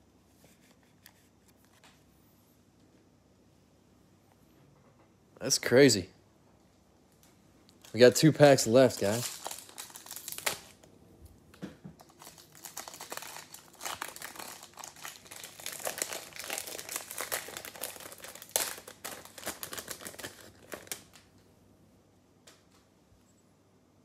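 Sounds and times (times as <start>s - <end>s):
foil wrapper tearing and crinkling: 7.8s - 10.8s, 12.0s - 21.3s.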